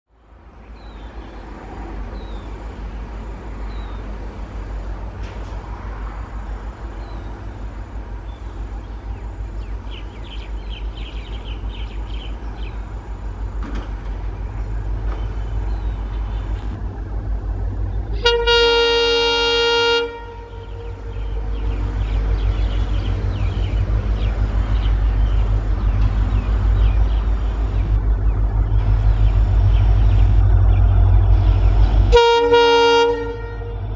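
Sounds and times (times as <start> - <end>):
diesel locomotive rumble: 0.1 - 33.9
birds chirping: 0.6 - 4.2, 6.8 - 32.3
locomotive horn: 18.1 - 22.0, 32.0 - 33.9.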